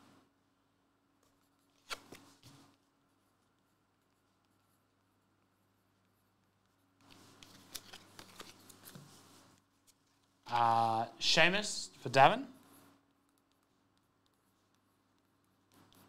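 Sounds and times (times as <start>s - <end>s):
cards and paper rustling: 1.8s - 2.8s, 7.0s - 10.3s.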